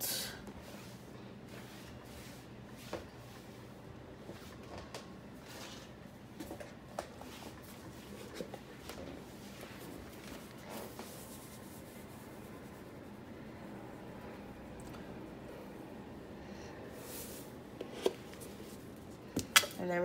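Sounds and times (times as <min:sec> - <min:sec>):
kitchen clicks and taps: 0:19.4 - 0:19.8.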